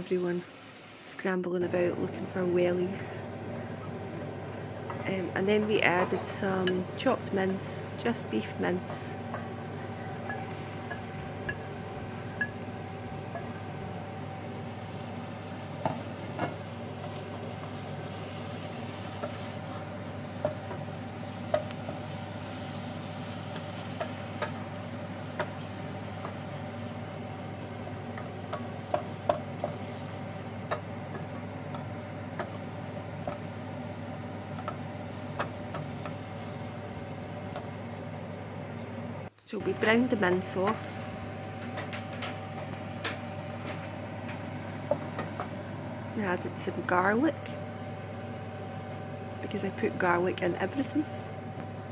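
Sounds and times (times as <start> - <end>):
meat and onions sizzling: 0.0 - 38.8
steady hum: 1.2 - 51.9
wooden spoon knocking on pot: 28.5 - 29.8.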